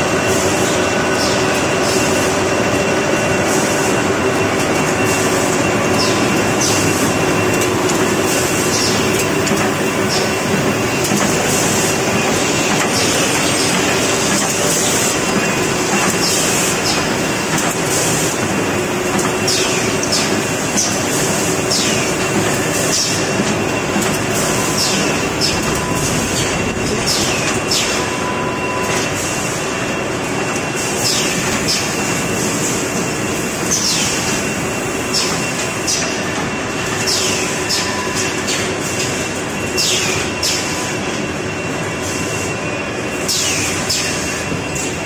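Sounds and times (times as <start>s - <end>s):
constant machine hum: 0.0s - 45.0s
machine clattering: 0.3s - 29.4s.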